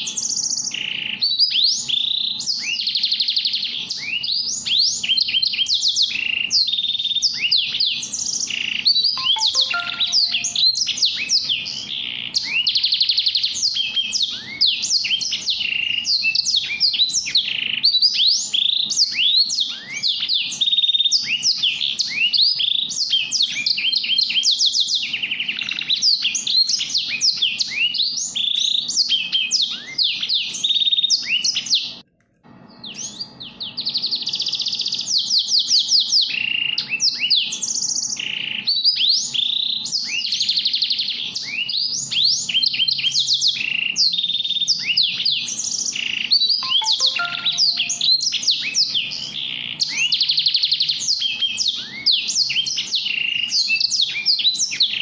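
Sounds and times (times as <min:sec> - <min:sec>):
finch singing: 0:08.9 - 0:11.0, 0:46.4 - 0:55.0.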